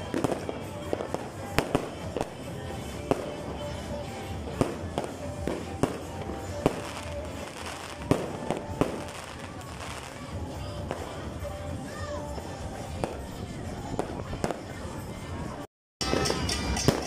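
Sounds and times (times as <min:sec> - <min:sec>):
fireworks bangs and cracks: 0:00.0 - 0:11.3, 0:16.0 - 0:17.0
background music: 0:00.0 - 0:17.0.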